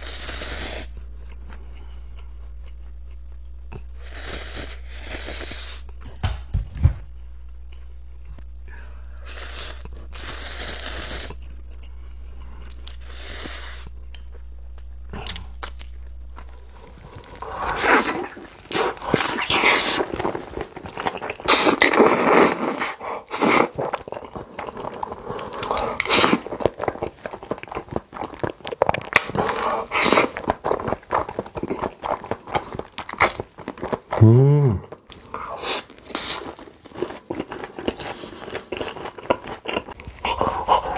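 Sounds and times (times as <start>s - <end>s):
person slurping noodles: 0.0s - 0.9s, 9.2s - 11.4s, 12.9s - 13.9s, 16.6s - 27.1s, 29.2s - 31.4s, 40.2s - 40.9s
chewing: 0.0s - 6.1s, 7.7s - 40.9s
steady low hum: 0.0s - 40.9s.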